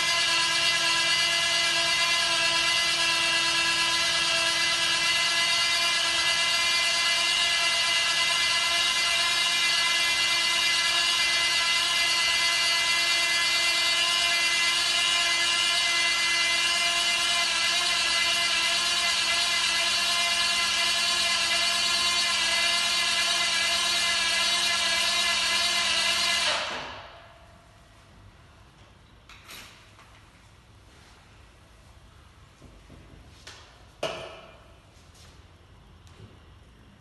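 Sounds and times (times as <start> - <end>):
electric drill motor whine: 0.0 - 26.8.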